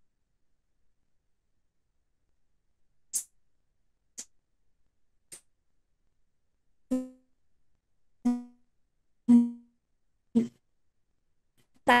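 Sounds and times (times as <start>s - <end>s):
short struck musical notes: 8.3s - 8.5s.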